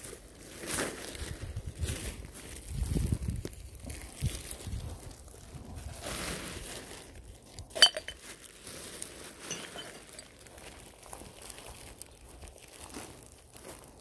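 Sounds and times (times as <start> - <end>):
footsteps on pine needles: 0.0 - 14.0
plastic bag rustling: 0.0 - 14.0
glass clinking in a bag: 7.5 - 8.6, 9.3 - 10.8.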